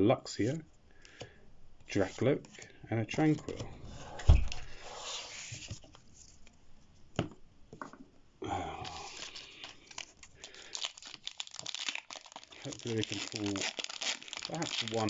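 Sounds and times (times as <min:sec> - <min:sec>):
foil pack crinkling and tearing: 0:08.9 - 0:15.0.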